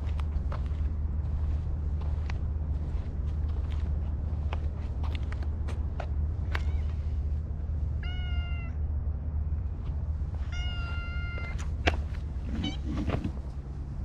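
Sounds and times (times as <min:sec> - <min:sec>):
steady low rumble: 0:00.0 - 0:14.0
cat meowing: 0:06.5 - 0:07.0, 0:08.0 - 0:08.8, 0:10.5 - 0:11.7.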